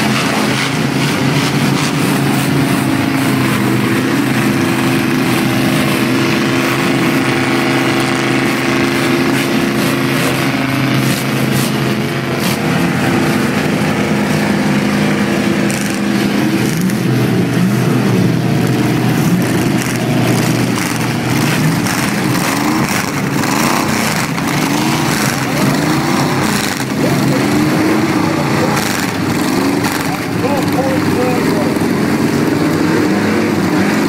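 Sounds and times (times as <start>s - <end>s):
car engines running and revving: 0.0s - 34.0s.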